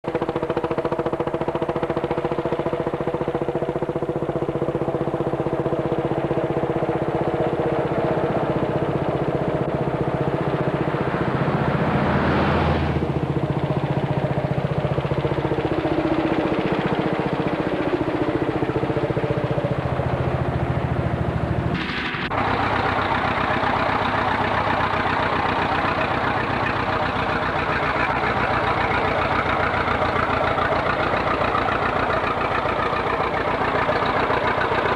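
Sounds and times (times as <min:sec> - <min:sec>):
tractor engines running: 0:00.0 - 0:34.9.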